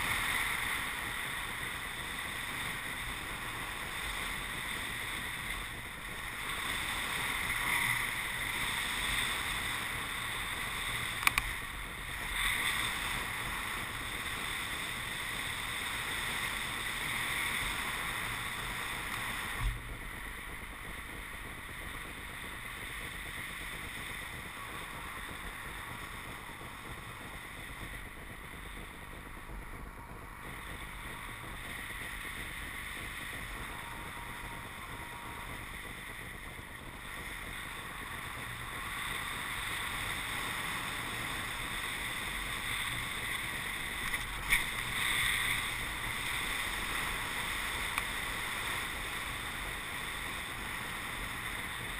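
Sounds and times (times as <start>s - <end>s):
rush of air in flight: 0.0s - 51.9s
sharp clicks: 11.2s - 11.5s.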